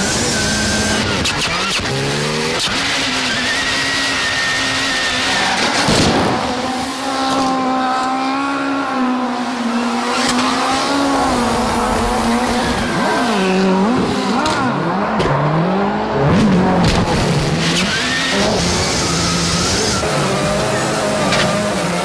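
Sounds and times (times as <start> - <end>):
rally car engine revving: 0.0 - 22.0.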